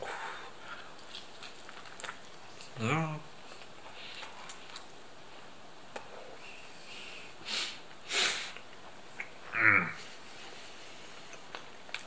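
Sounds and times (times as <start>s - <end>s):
person sniffing: 6.9s - 8.6s.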